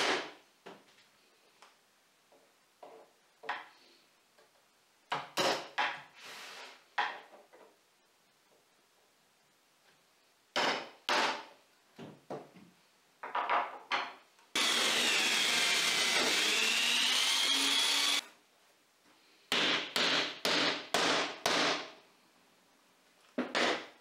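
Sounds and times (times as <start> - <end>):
electric drill boring into wood: 14.6 - 18.2.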